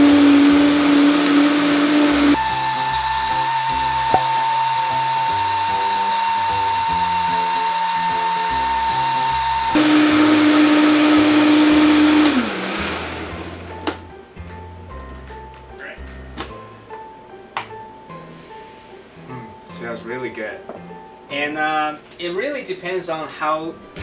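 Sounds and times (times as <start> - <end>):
blender motor whining: 0.0 - 14.0.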